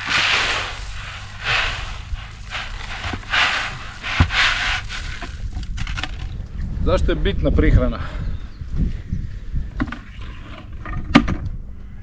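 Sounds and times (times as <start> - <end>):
grain pouring into wooden tray: 0.0 - 6.2.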